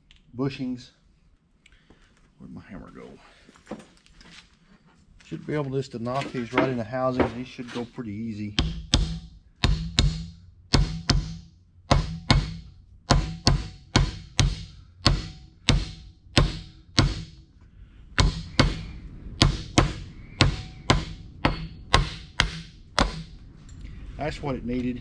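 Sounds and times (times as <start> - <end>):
hammer blows on metal: 8.5 - 17.6, 18.2 - 23.4.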